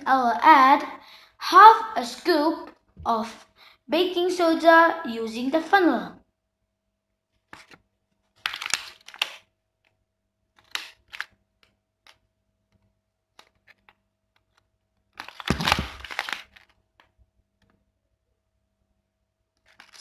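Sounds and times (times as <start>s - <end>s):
plastic container crinkling: 15.1s - 16.8s.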